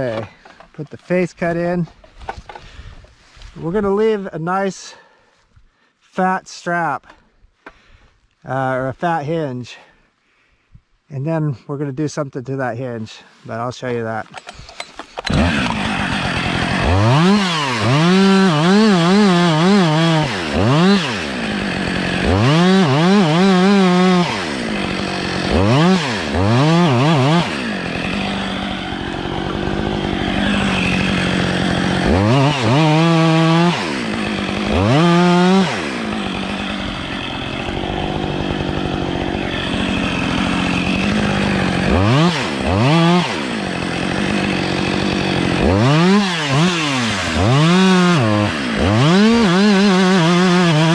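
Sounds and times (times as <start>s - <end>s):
chainsaw revving while cutting: 15.2s - 50.9s.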